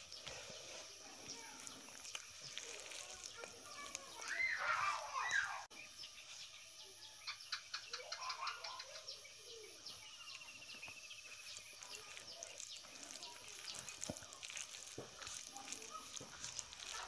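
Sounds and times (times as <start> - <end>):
dal pouring onto rice: 0.0 - 5.2, 11.3 - 17.0
rice squished by hand: 0.0 - 5.7, 10.3 - 17.0.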